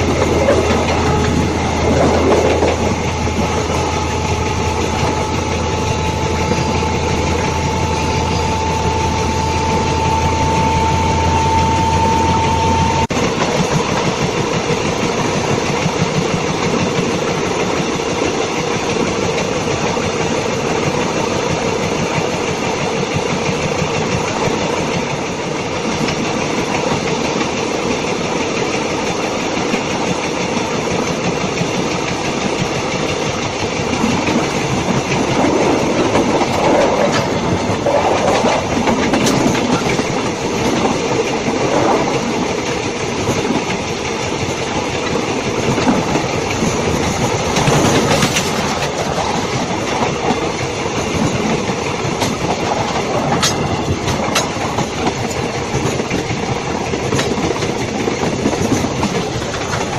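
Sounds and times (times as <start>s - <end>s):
train wheels rolling on rails: 0.0s - 59.9s.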